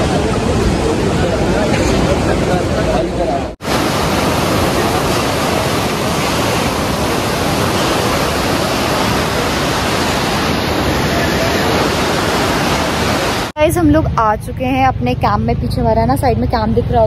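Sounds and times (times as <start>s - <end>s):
rapids rushing over boulders: 0.0s - 13.6s.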